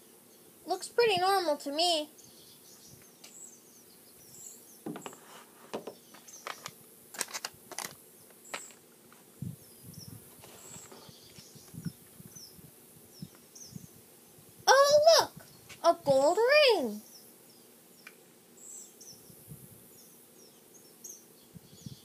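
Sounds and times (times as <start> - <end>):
sharp crackles and clicks: 6.2 - 8.8.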